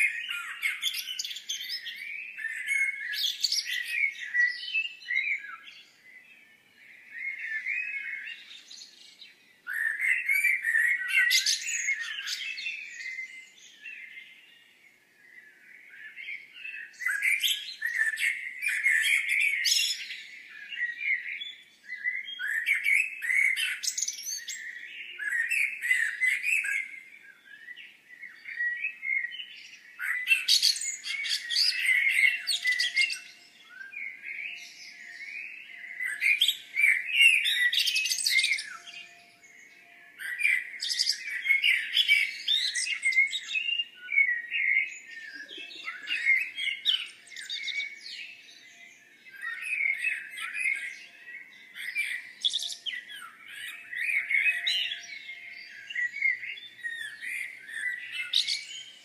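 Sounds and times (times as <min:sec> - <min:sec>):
songbird chirping and twittering: 0:00.0 - 0:59.0.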